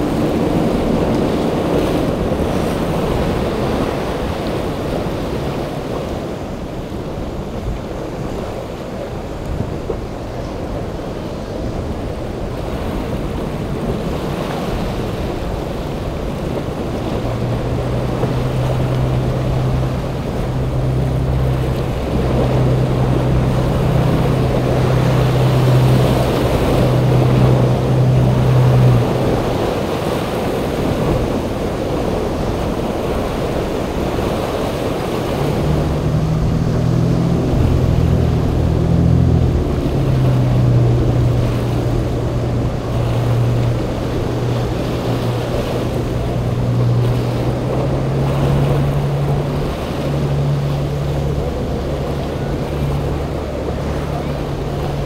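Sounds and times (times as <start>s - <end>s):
boat diesel engines droning: 0.0s - 55.0s
hull rushing through waves: 0.0s - 55.0s
wind on microphone: 0.0s - 55.0s.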